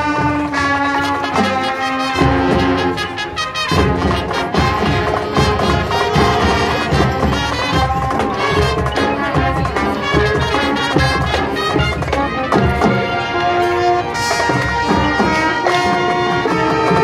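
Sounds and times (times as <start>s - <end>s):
brass holding chords: 0.0s - 17.0s
drum and percussion hits: 0.0s - 17.0s.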